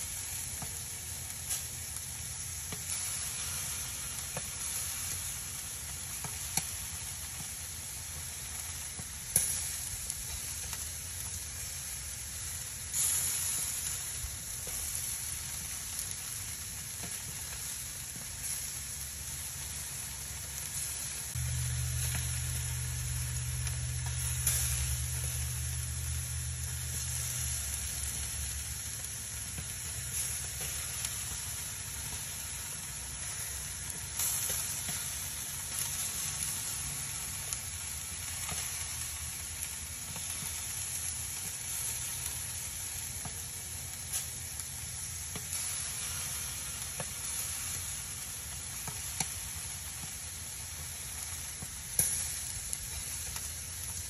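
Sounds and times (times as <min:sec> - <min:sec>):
charcoal burning with crackles: 0:00.0 - 0:54.0
low hum: 0:21.4 - 0:28.8.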